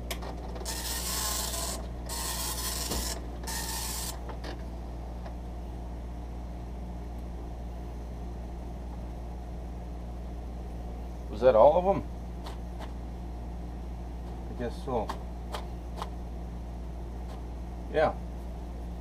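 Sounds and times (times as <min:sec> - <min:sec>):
steady low hum: 0:00.0 - 0:19.0
dot matrix printer rasping: 0:00.6 - 0:04.2.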